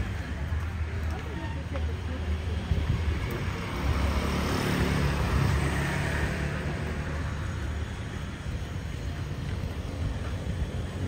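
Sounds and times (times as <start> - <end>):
street rumble: 0.0 - 11.0
motor scooter passing: 3.0 - 11.0.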